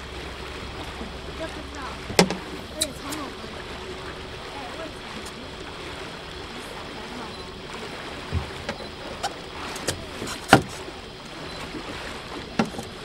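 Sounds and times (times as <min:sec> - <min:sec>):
water slapping boat hull: 0:00.0 - 0:13.0
sharp knocks: 0:02.1 - 0:02.5.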